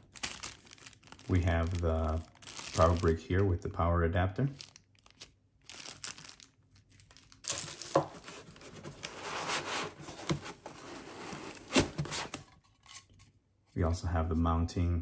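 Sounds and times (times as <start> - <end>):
foam and cardboard rustling: 7.4 - 12.5.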